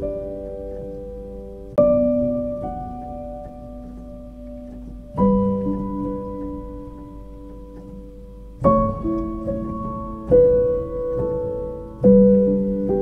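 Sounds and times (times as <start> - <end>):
soft piano chords: 0.0 - 13.0.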